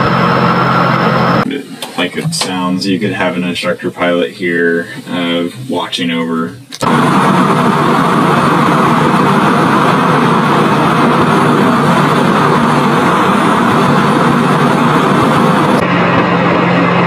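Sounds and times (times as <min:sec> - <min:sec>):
jet engines rushing: 0:00.0 - 0:03.3, 0:06.7 - 0:17.0.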